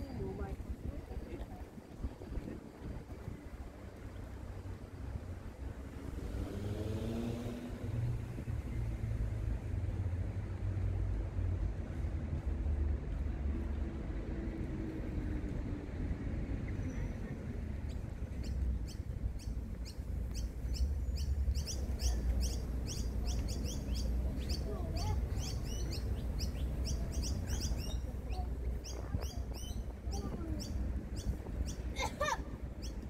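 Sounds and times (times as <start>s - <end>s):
low city rumble: 0.0s - 33.0s
birds chirping: 17.8s - 33.0s.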